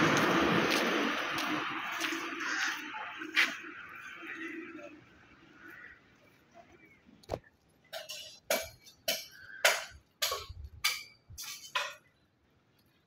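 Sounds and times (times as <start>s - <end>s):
hammer striking stone: 8.5s - 11.8s.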